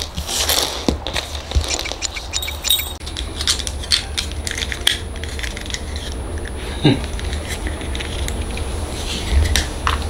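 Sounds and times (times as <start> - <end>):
plastic parts clicking and rattling: 1.1 - 6.1.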